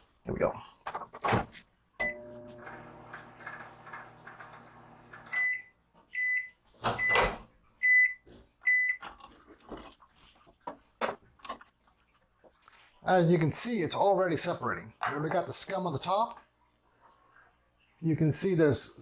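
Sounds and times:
microwave oven humming: 2.0 - 5.7.

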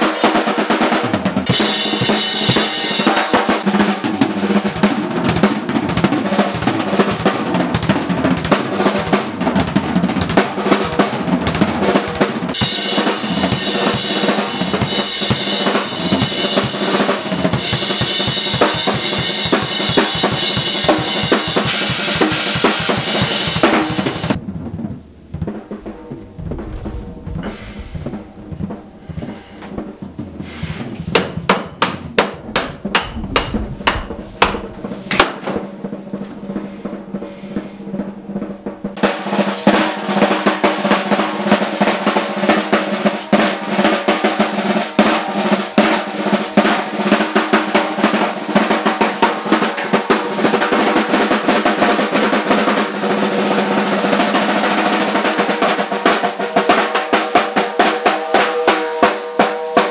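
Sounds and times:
snare drum roll: 0.0 - 59.9
drum hits with bass drum thumps: 12.6 - 30.4, 31.0 - 36.4.

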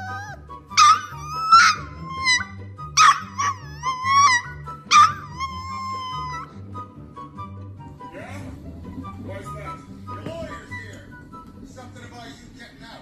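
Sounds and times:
puppy yelping whines: 0.0 - 6.6
background music with steady beat: 0.0 - 13.0.

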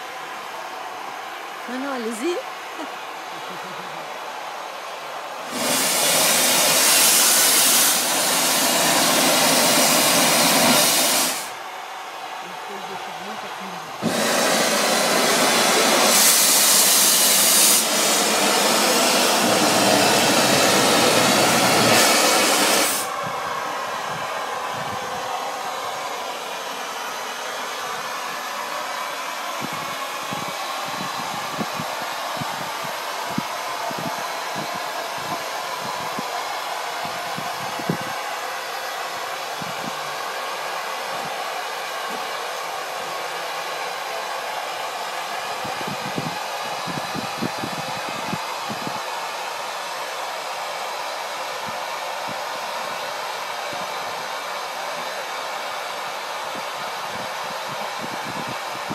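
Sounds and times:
steam locomotive blowing steam: 5.4 - 11.6, 13.6 - 25.3.

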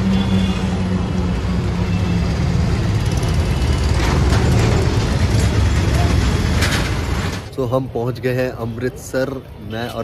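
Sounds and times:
auto-rickshaw engine running: 0.0 - 7.5
road and traffic noise: 0.0 - 10.0.

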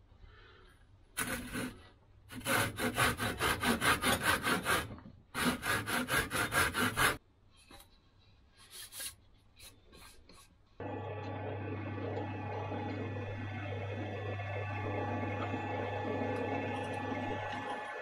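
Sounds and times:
hand saw cutting wood: 1.2 - 7.2.

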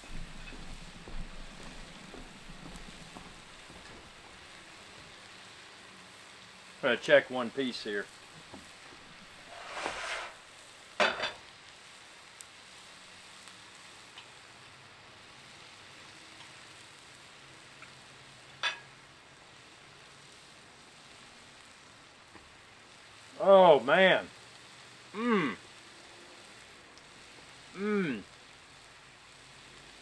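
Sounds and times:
steak sizzling on griddle: 0.0 - 30.0
scraping on griddle: 8.6 - 11.4
spatula tapping metal griddle: 18.6 - 18.9.

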